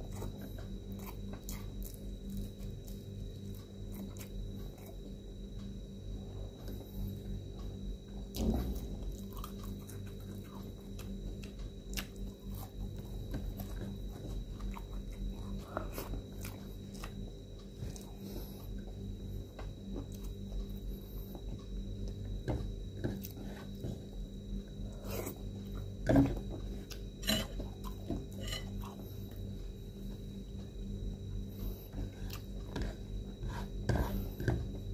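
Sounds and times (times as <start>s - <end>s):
person chewing and lip smacking: 8.3s - 19.0s, 32.3s - 32.8s.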